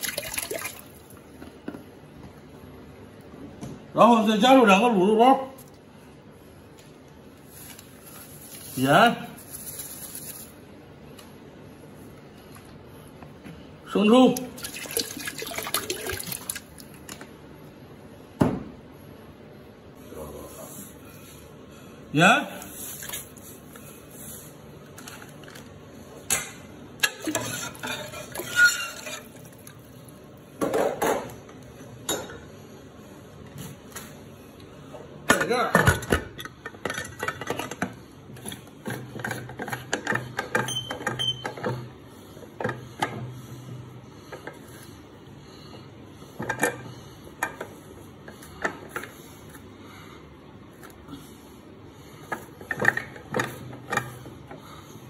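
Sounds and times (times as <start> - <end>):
metal kitchenware clanking: 26.3 - 29.4.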